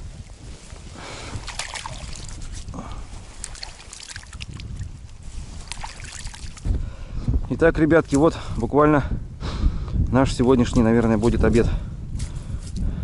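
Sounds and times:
water sloshing and splashing: 0.0s - 6.8s.

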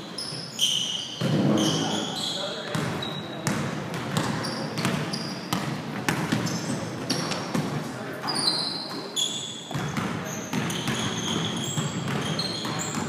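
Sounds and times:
sneaker squeaks: 0.0s - 13.0s
basketball bouncing: 2.7s - 7.8s, 9.7s - 13.0s.

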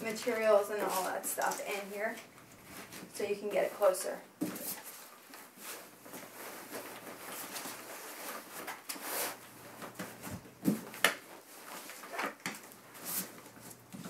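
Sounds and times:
fabric rustling: 0.0s - 14.0s
mattress pad brushing: 4.6s - 9.4s.

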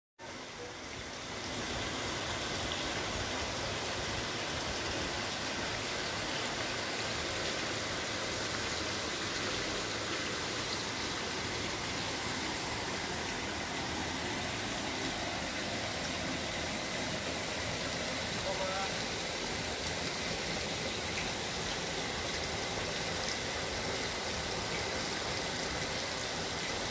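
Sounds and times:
waterfall and stream rushing: 0.2s - 26.9s.

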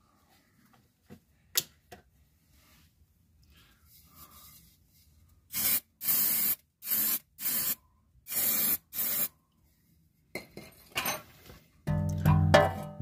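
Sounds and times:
spray nozzle hissing: 5.6s - 9.3s.

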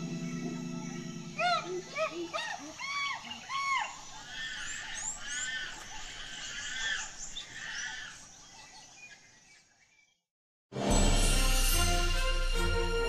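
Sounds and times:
birds chirping and whistling: 0.0s - 9.7s
faint outdoor ambience: 0.0s - 10.1s.

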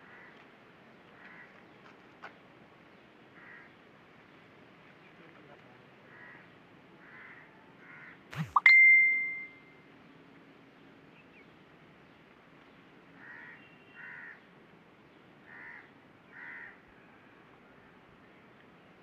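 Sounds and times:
crow cawing: 0.0s - 0.4s, 1.2s - 1.5s, 3.4s - 3.7s, 6.1s - 8.2s, 13.2s - 14.4s, 15.5s - 16.9s.

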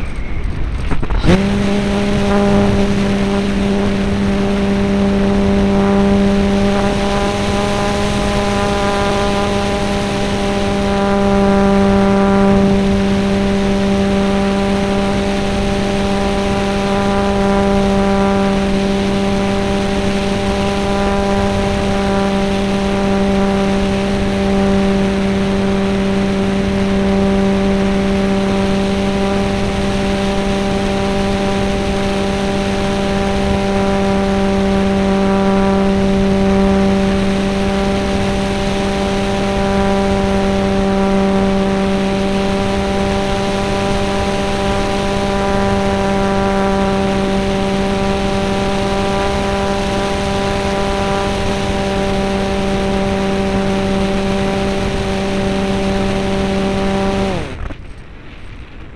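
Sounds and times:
model airplane motor and propeller: 0.0s - 58.9s.

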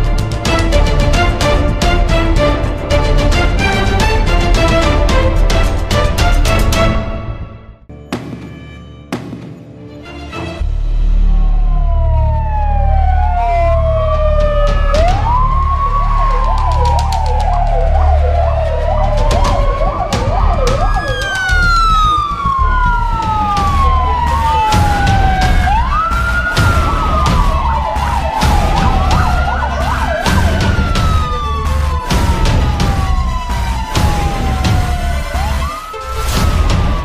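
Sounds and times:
emergency sirens wailing: 0.0s - 7.3s, 11.0s - 37.0s
warbling siren yelp: 11.2s - 37.0s.

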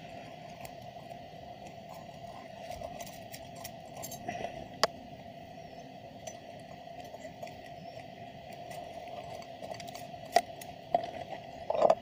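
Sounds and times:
steady background hum: 0.0s - 12.0s
wire rustling: 1.7s - 4.6s.

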